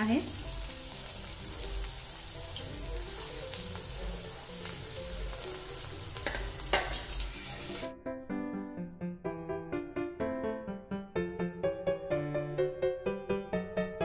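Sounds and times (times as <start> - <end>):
food sizzling in hot oil: 0.0 - 7.9
soft background music: 0.0 - 14.0.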